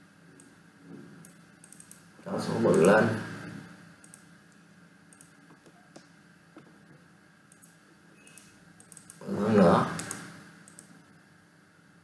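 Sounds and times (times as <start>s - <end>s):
computer mouse clicks: 1.2s - 2.0s, 2.7s - 2.9s, 4.0s - 4.3s, 5.1s - 6.1s, 7.5s - 9.2s, 9.9s - 11.0s.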